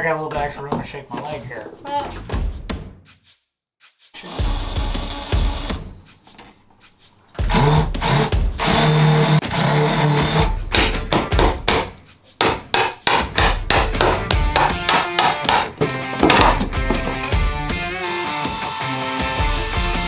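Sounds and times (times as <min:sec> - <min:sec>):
cordless impact driver running: 0:04.2 - 0:05.8, 0:07.4 - 0:10.5.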